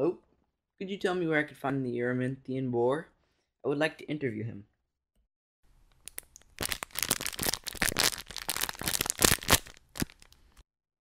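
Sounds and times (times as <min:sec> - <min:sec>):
crinkling crackles: 0:05.9 - 0:10.6.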